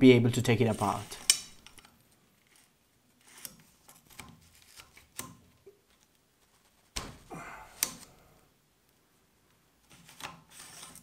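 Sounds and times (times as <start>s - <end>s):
rifle bolt metal clicks: 1.2s - 1.9s.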